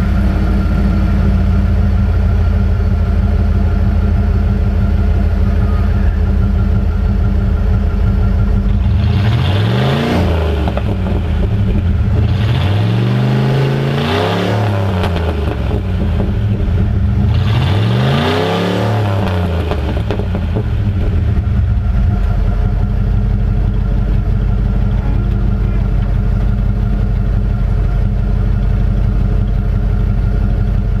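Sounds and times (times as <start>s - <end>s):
car engine idling and revving: 0.0s - 31.0s.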